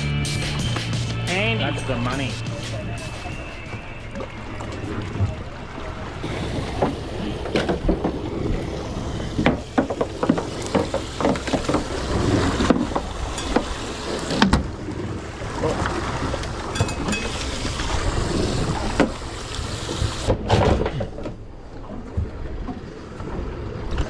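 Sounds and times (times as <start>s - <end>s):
boat hull slapping waves: 0.0s - 24.0s
wind on microphone: 11.7s - 20.5s.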